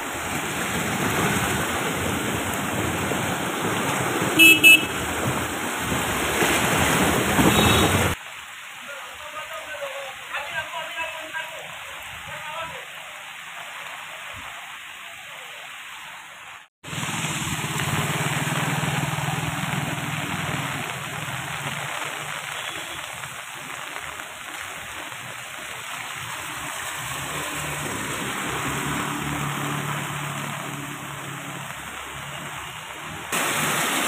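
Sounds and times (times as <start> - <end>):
rain and running floodwater: 0.0 - 34.0
motorcycle engine humming: 4.4 - 5.4, 16.9 - 21.6.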